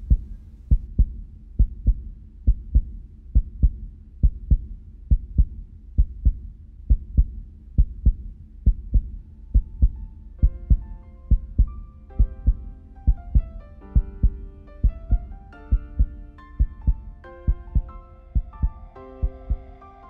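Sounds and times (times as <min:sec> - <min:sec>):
heartbeat thumps: 0:00.0 - 0:19.7.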